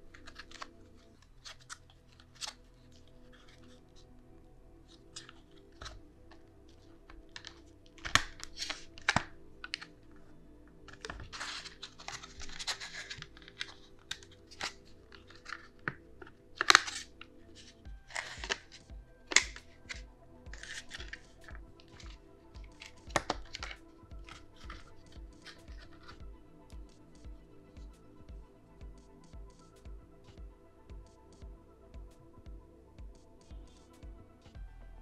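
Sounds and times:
plastic crackling and clicking: 0.1 - 4.0, 4.9 - 27.8.

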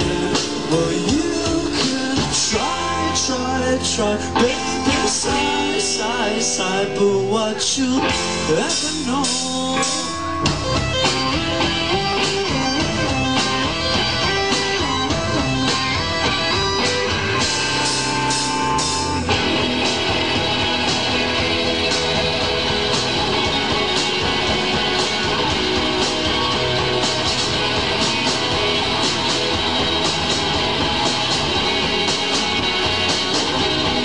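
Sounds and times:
live rock band playing: 0.0 - 34.0
wavering lead melody: 8.1 - 34.0.

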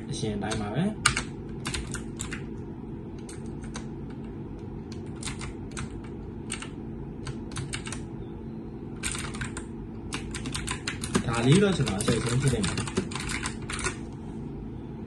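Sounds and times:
low background hum: 0.0 - 15.0
mechanical keyboard typing: 0.5 - 2.5, 3.2 - 4.3, 4.9 - 8.1, 9.0 - 14.0.

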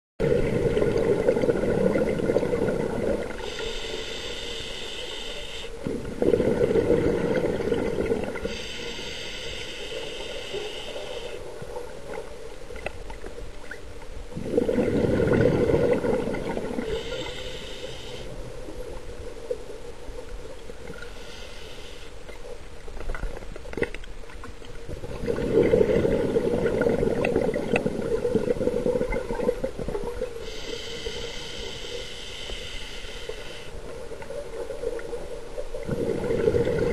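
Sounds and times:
bubbling exhaled air: 0.2 - 11.4, 14.3 - 18.4, 24.9 - 33.7, 35.8 - 36.9
regulator hissing inhalation: 3.4 - 5.8, 8.4 - 11.4, 16.8 - 18.3, 21.1 - 22.2, 30.4 - 33.8.

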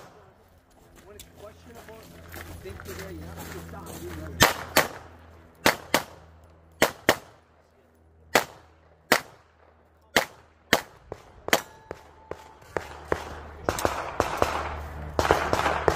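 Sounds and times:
pistol shots: 4.4 - 5.0, 5.6 - 6.2, 6.8 - 7.4, 8.3 - 9.5, 10.1 - 12.0, 12.8 - 15.9.

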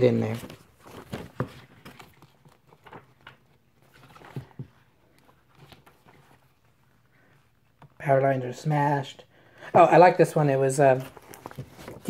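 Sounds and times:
book pages rustling: 0.0 - 8.0, 10.8 - 12.0.

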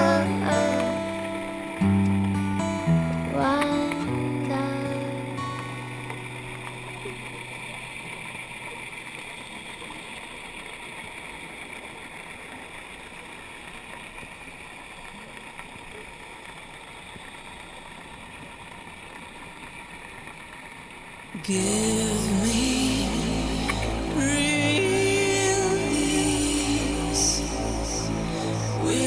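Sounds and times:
background music: 0.0 - 8.0, 21.5 - 29.0
faint steady hum: 0.0 - 20.1
muffled underwater hiss: 0.0 - 29.0.

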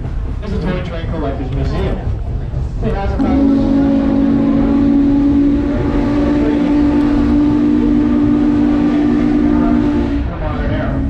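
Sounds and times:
train rumble: 0.0 - 11.0
steam whistle chord: 3.2 - 11.0.

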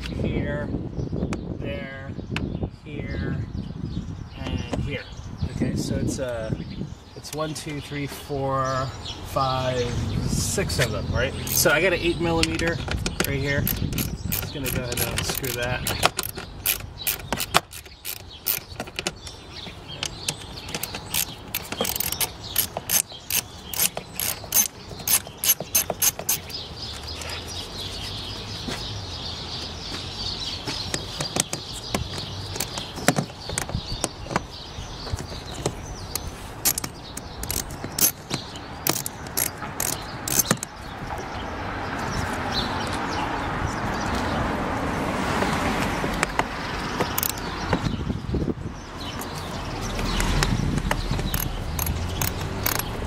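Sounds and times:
hand ratchet clicking: 11.5 - 11.7, 12.4 - 19.4, 20.0 - 26.5, 31.0 - 32.8, 36.2 - 40.7, 47.1 - 47.5, 50.2 - 53.0.

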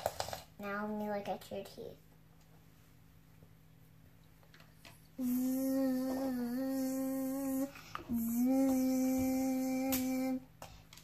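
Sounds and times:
child humming buzzing notes: 5.2 - 10.5.

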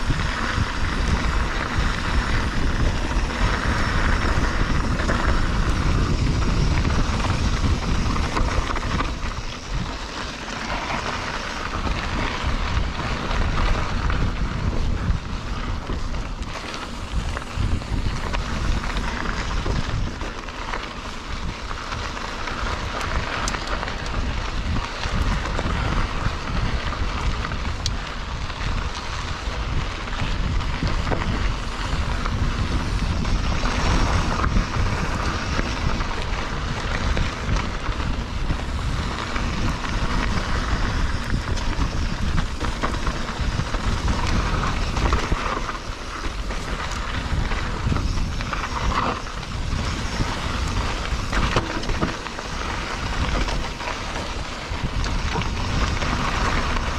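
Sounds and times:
bike tyres rolling on dirt: 0.0 - 56.9
wind noise on microphone: 0.0 - 56.9
bike knocking over bumps: 38.5 - 56.9.

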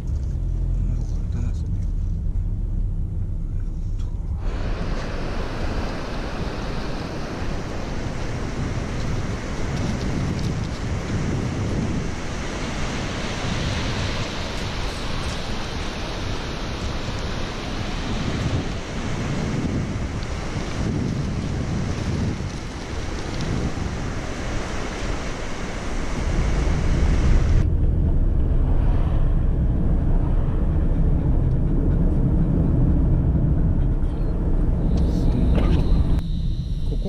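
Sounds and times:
car engine rumble: 0.0 - 37.0
wind on microphone: 1.6 - 37.0
surf washing onto pebbles: 4.4 - 27.6.

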